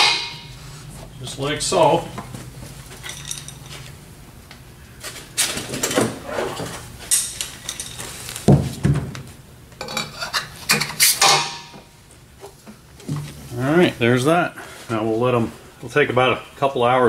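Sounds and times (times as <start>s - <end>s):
metal sleeves clinking: 2.9s - 3.9s, 7.1s - 8.3s.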